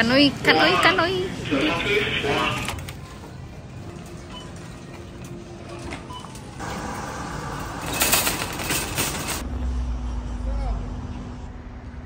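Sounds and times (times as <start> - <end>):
faint music: 0.0 - 6.8
store background noise: 0.0 - 9.6
outdoor noise: 0.0 - 12.0
shopping cart being pushed: 4.0 - 9.4.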